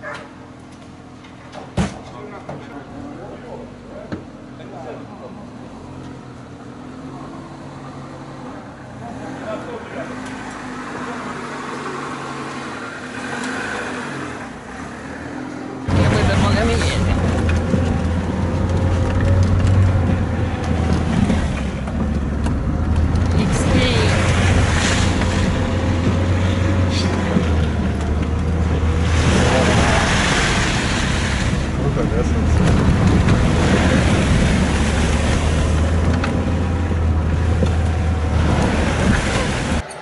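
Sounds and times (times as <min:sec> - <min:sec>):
car engine and tyres rumbling: 0:00.0 - 0:40.0
rain: 0:15.9 - 0:39.8.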